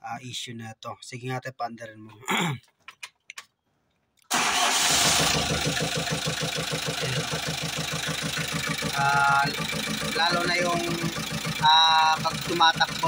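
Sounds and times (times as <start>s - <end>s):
diesel engine starting and idling: 4.3s - 13.0s
rhythmic engine knock: 5.4s - 13.0s.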